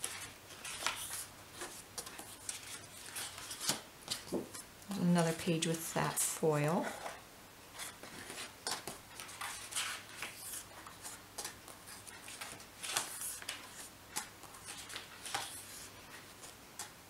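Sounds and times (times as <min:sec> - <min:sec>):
stiff paper rustling and flicking: 0:00.0 - 0:04.6, 0:07.7 - 0:16.6.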